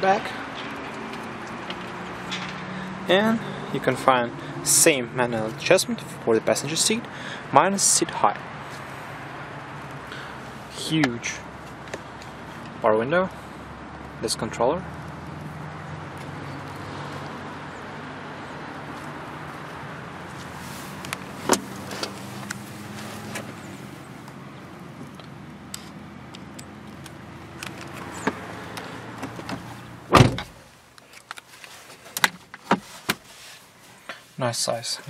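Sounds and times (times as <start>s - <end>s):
car door shutting: 21.4s - 22.2s, 29.2s - 30.6s.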